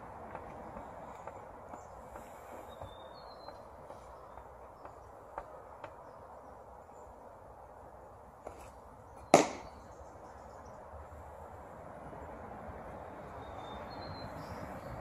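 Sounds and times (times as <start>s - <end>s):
baseball popping into mitt: 9.3s - 9.7s.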